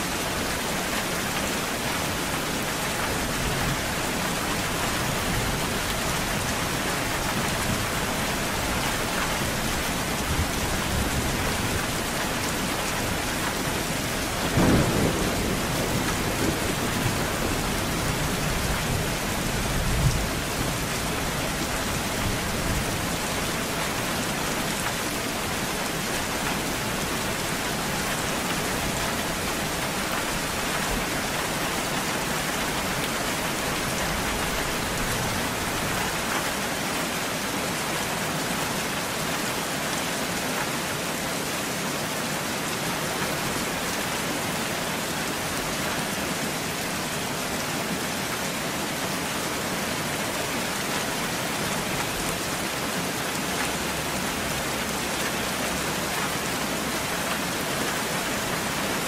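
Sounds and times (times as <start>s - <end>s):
steady rain falling: 0.0s - 59.0s
low thunder rumble: 14.3s - 20.8s
thunder clap: 14.5s - 18.4s.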